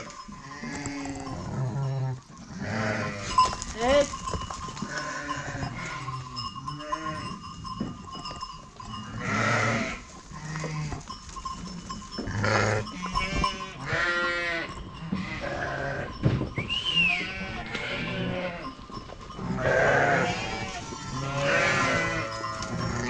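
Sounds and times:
sheep bleating: 0:00.4 - 0:04.1, 0:04.9 - 0:07.3, 0:09.0 - 0:11.1, 0:12.3 - 0:16.1, 0:17.0 - 0:18.8, 0:19.4 - 0:23.0
bell-like ringing: 0:03.0 - 0:23.0.

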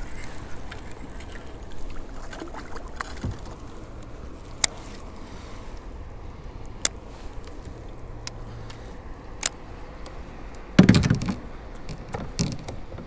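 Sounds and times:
gear knocking against kayak: 0:10.8 - 0:13.0.

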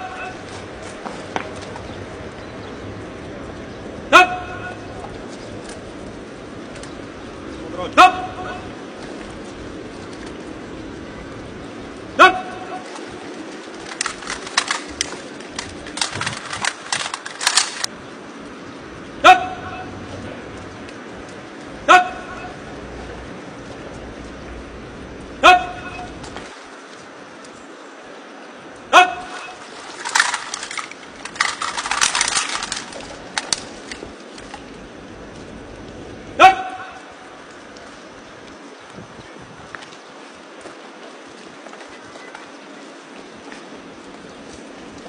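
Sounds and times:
rifles and kit clattering: 0:12.6 - 0:17.9, 0:29.2 - 0:34.8.

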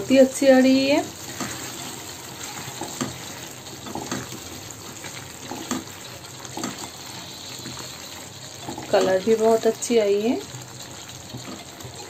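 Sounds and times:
curry simmering in a pan: 0:00.0 - 0:12.0
wooden spatula scraping and knocking: 0:01.2 - 0:06.9.

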